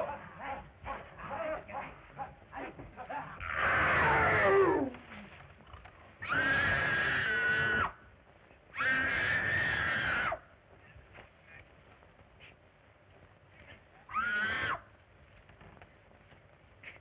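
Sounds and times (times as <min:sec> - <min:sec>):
long shrill cries: 0:14.1 - 0:14.8.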